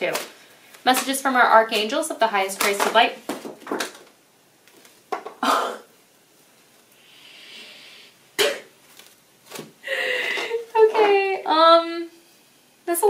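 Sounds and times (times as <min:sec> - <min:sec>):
cards rustling: 0:00.0 - 0:05.2, 0:08.8 - 0:09.8
breathy burst: 0:09.8 - 0:10.6.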